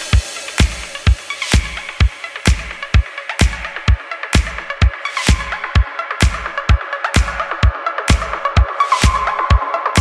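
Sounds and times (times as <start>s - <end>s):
music with kick-drum beat: 0.0s - 10.0s.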